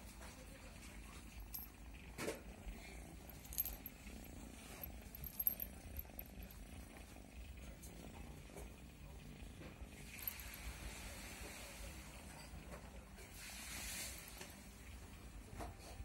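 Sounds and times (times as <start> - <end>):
cat purring: 0.2 - 15.5
collar bell jingling: 1.2 - 2.0, 3.0 - 7.3, 10.0 - 10.8.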